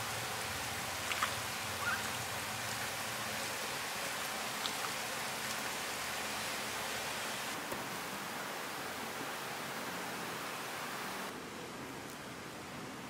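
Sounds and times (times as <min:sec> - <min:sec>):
steady hiss: 0:00.0 - 0:13.0
faint wet clicks: 0:01.0 - 0:02.2.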